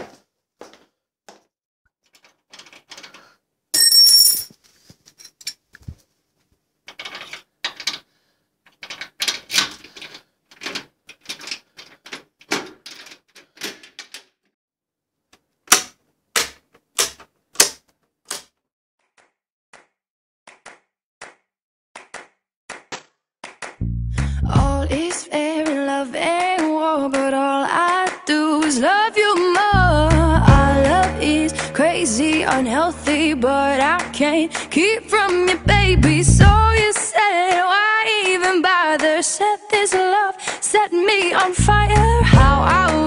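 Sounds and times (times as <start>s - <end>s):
ringing clash: 3.8s - 4.5s.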